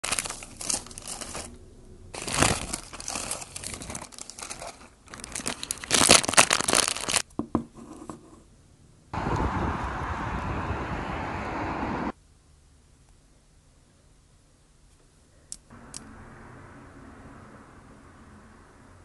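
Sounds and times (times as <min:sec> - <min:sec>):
paper wrapper crinkling: 0:00.0 - 0:01.6, 0:02.2 - 0:07.3.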